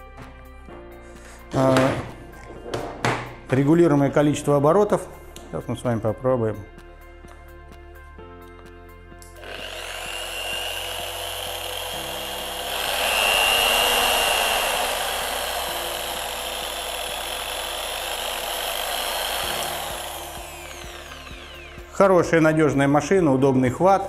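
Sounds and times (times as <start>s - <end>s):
car polisher whining: 9.4s - 22.1s.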